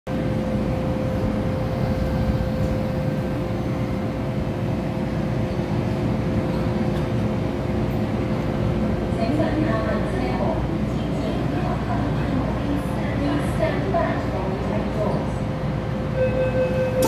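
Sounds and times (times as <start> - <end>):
train rumbling: 0.1 - 17.0.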